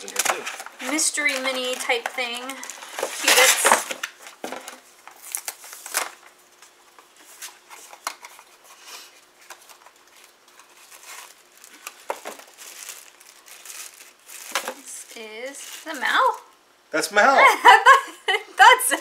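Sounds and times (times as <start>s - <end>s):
wrapper crinkling and tearing: 0.0s - 4.4s, 5.0s - 6.3s, 9.4s - 16.6s.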